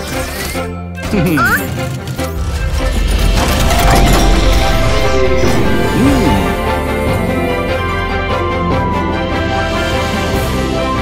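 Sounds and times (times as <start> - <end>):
cartoon background music: 0.0 - 11.0
falling glide sound effect: 2.8 - 7.5.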